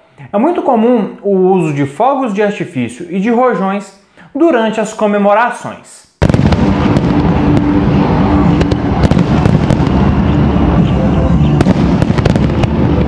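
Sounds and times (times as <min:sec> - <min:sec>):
fireworks shell bursts rumbling: 0:06.2 - 0:10.8, 0:11.6 - 0:13.0
fireworks crackling and popping: 0:06.2 - 0:13.0.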